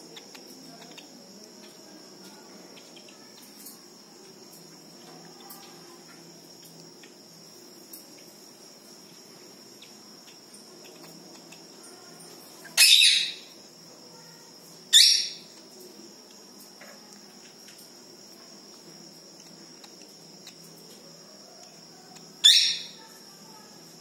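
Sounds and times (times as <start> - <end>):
crickets droning: 0.0 - 24.0
squirrel chirping: 12.6 - 13.6, 14.8 - 15.6, 22.1 - 23.1.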